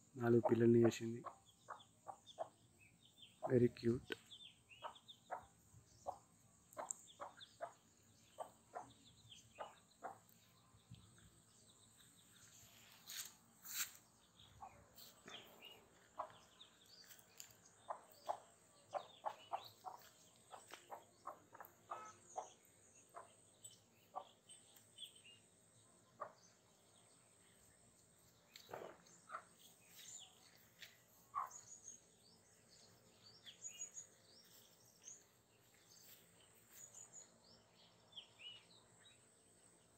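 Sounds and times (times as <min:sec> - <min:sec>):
ducklings and hen chirping: 0:00.4 - 0:03.6, 0:04.6 - 0:11.3, 0:14.4 - 0:25.3, 0:26.1 - 0:26.7, 0:28.5 - 0:32.1.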